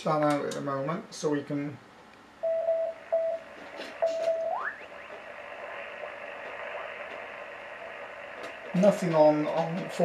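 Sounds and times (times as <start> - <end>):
radio beeping tone: 2.4 - 10.0
radio band hiss: 3.0 - 10.0.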